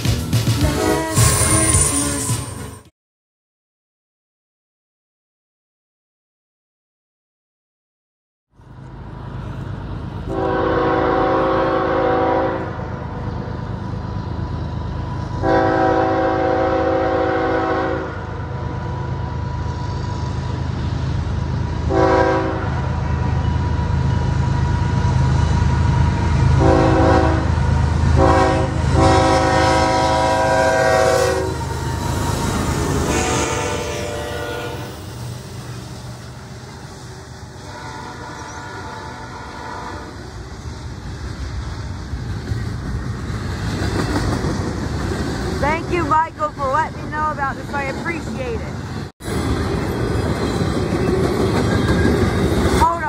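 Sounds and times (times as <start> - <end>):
locomotive horn blasts: 0.6 - 2.6, 10.3 - 12.9, 15.4 - 18.3, 21.9 - 22.9, 26.6 - 27.6, 28.2 - 31.6, 33.0 - 35.0, 37.6 - 40.2
diesel engine rumble: 8.5 - 11.8.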